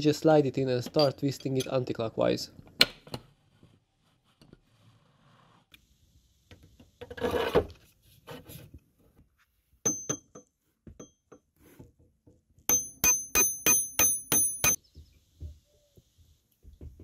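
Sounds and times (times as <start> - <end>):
hammer striking ringing steel bar: 9.9 - 11.2, 12.7 - 14.8.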